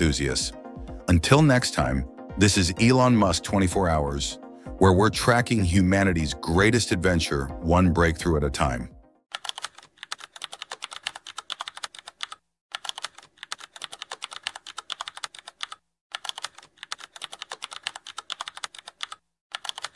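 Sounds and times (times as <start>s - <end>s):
rapid keyboard typing clicks: 9.3s - 19.9s.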